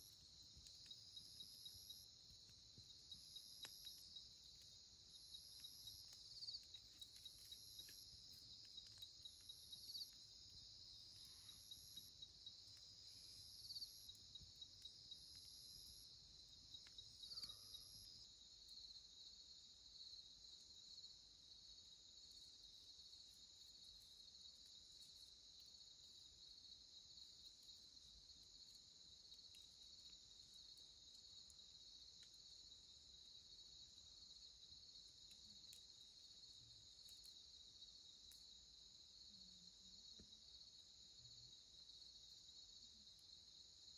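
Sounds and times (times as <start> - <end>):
crickets trilling: 0.0 - 19.0
high insect call in pulses: 0.0 - 21.1.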